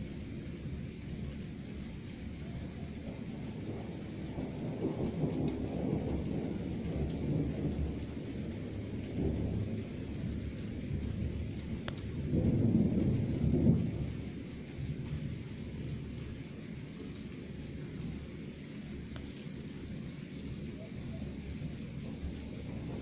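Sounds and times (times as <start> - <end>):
faint rain hiss: 0.0 - 23.0
rolling thunder: 2.4 - 16.4, 19.0 - 23.0.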